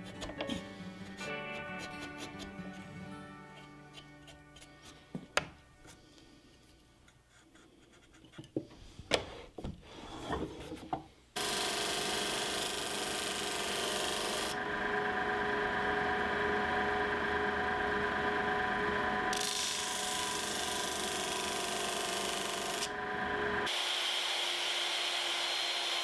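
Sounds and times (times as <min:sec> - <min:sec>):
chisel scraping wood: 0:00.0 - 0:05.2, 0:07.0 - 0:11.0
disc sander humming: 0:11.4 - 0:26.0.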